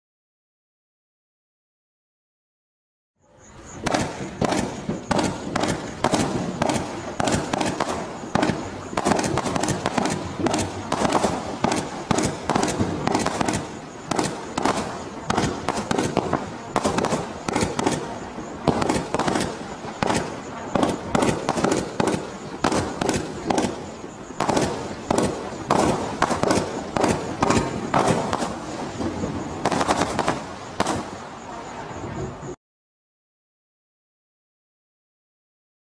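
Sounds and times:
firework cake bangs: 0:03.8 - 0:31.2.

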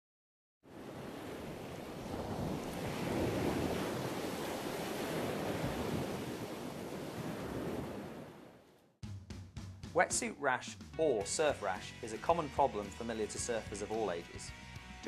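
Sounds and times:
surf breaking over rocks: 0:00.7 - 0:08.4.

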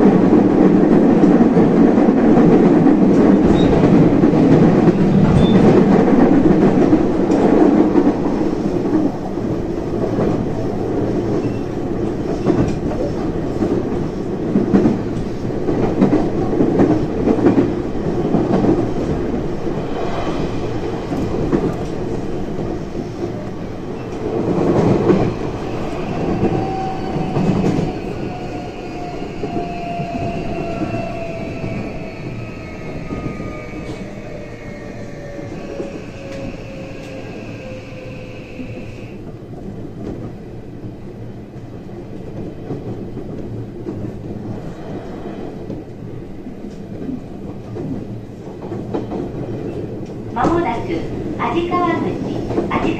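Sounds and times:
train wheels rumbling on rails: 0:00.0 - 0:52.9
train inverter whine: 0:25.0 - 0:39.3.

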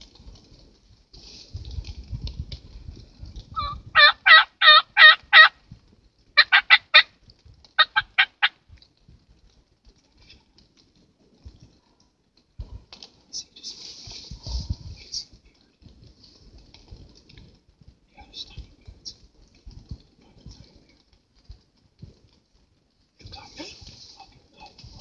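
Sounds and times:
turkey yelping: 0:03.6 - 0:05.5, 0:06.4 - 0:07.1, 0:07.8 - 0:08.6.

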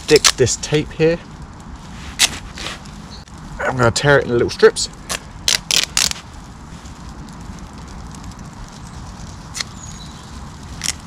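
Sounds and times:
duct tape ripping: 0:00.0 - 0:00.5, 0:02.1 - 0:02.9, 0:05.0 - 0:06.3, 0:09.5 - 0:09.8, 0:10.8 - 0:11.0
low background rumble: 0:00.0 - 0:11.0.

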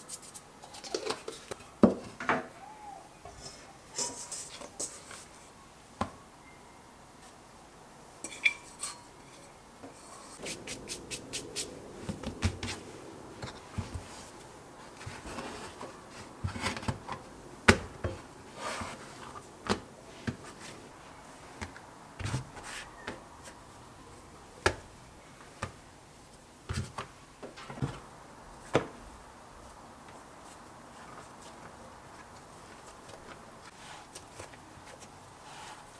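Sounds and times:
hands rubbing and patting dough: 0:09.9 - 0:23.6.

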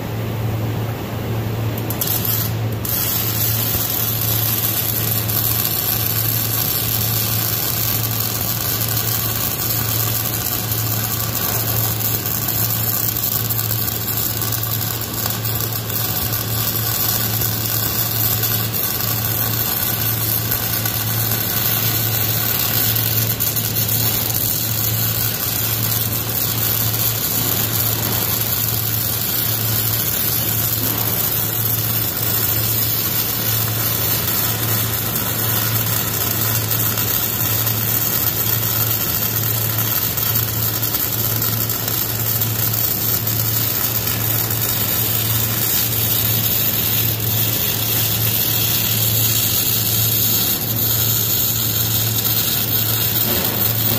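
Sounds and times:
steady low hum: 0:00.0 - 0:53.9
welding arc crackling and sizzling: 0:01.5 - 0:53.9.

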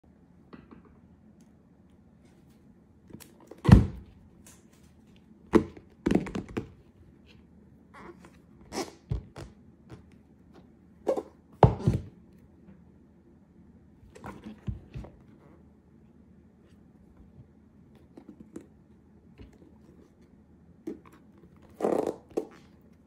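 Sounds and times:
box handling knocks and rustles: 0:11.6 - 0:12.2.

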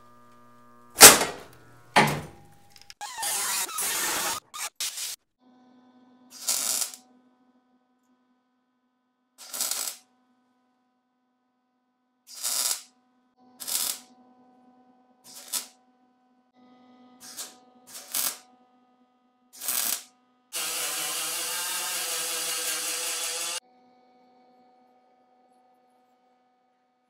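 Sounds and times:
disc grinder on metal: 0:03.0 - 0:04.9, 0:20.6 - 0:23.6
welding crackle: 0:09.4 - 0:10.0, 0:12.3 - 0:12.9, 0:13.6 - 0:14.1, 0:15.3 - 0:15.7, 0:17.2 - 0:18.4, 0:19.6 - 0:23.6.

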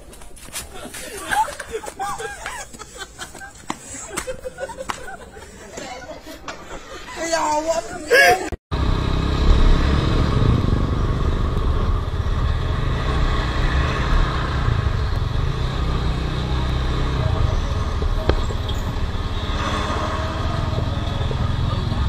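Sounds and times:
motorcycle engine: 0:08.7 - 0:22.0.

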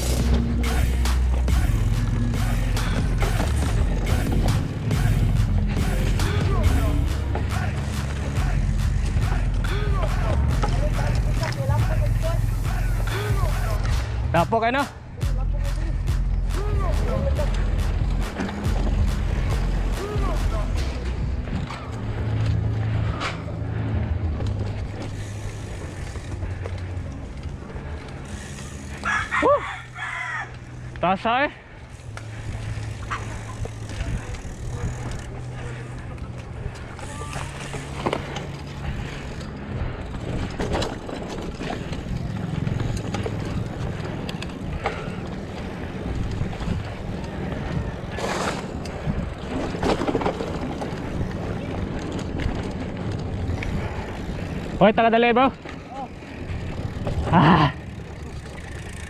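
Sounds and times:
bike rattling: 0:00.0 - 0:59.0
bike tyres rolling: 0:00.0 - 0:59.0
wind buffeting microphone: 0:31.8 - 0:59.0.

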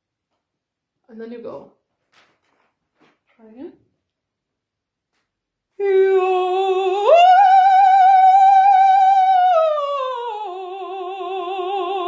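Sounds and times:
woman singing vocal exercise: 0:05.8 - 0:12.0.

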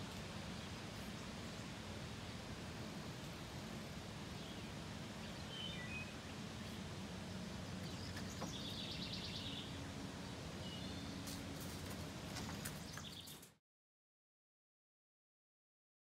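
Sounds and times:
steady low hum: 0:00.0 - 0:13.4
small birds chirping: 0:04.2 - 0:13.6.

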